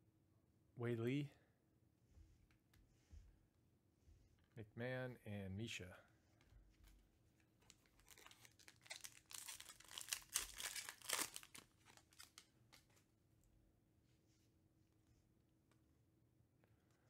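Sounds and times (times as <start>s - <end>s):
foil pack tearing and crinkling: 7.7s - 12.4s.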